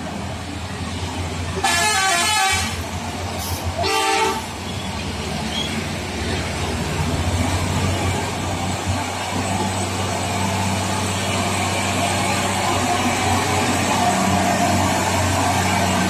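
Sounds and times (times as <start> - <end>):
truck diesel engine drone: 0.0 - 16.0
vehicle horn blasts: 1.6 - 2.8, 3.8 - 4.5.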